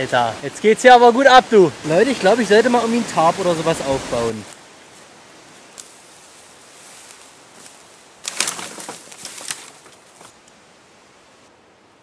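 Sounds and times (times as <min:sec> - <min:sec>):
wind hissing: 0:00.0 - 0:11.7
tarp flapping: 0:08.2 - 0:10.4.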